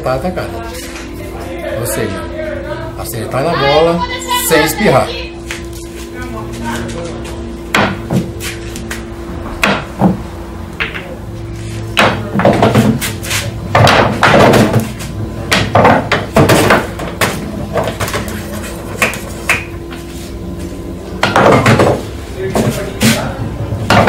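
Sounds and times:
steady low hum: 0:00.0 - 0:24.0
cue striking balls: 0:07.7 - 0:10.2, 0:10.8 - 0:11.2, 0:11.9 - 0:13.1, 0:13.7 - 0:20.0, 0:21.2 - 0:23.2, 0:23.8 - 0:24.0
balls knocking cushions: 0:13.7 - 0:18.4, 0:21.2 - 0:22.0.

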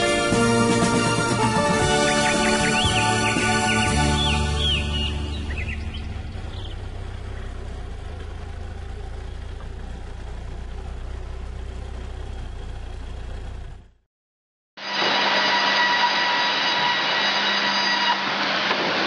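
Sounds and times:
forklift engine rumbling: 0:00.0 - 0:14.0.

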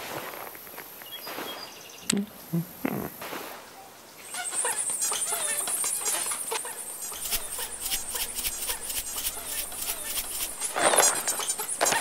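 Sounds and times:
high animal chirps and squeaks: 0:04.3 - 0:12.0.

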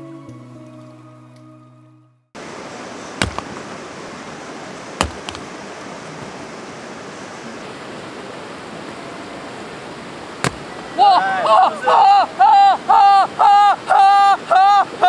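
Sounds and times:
rushing river: 0:02.4 - 0:15.0
hatchet chopping log: 0:03.2 - 0:03.8, 0:05.0 - 0:05.6, 0:10.4 - 0:10.9.

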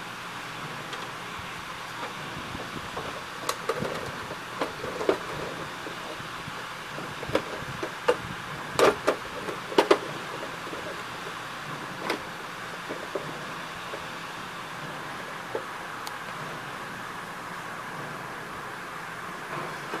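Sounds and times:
steady background hiss: 0:00.0 - 0:20.0
plastic clicks and knocks: 0:08.8 - 0:10.1.

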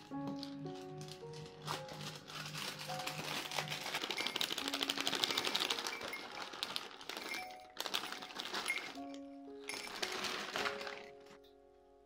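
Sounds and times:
cereal pouring into glass mug: 0:02.3 - 0:11.1.

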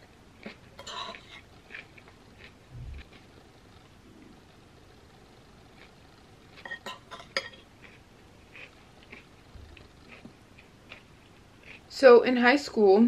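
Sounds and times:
close-up chewing: 0:00.3 - 0:12.0
metal fork clinking on bowl: 0:06.6 - 0:07.6.

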